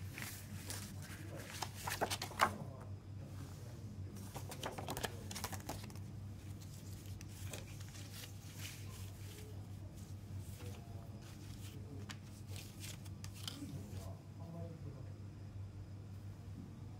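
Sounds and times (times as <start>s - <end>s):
paper booklet rustling: 0.0s - 2.8s, 4.1s - 14.2s
steady low hum: 0.0s - 16.9s.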